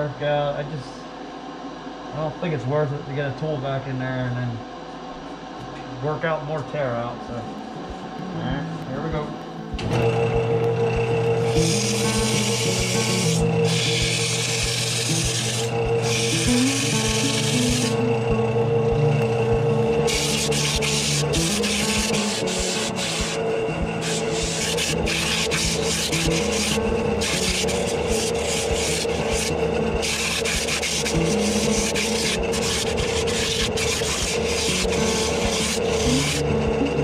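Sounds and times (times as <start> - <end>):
steady hum: 0.0 - 37.0
sanding wood rasping hiss: 11.3 - 37.0.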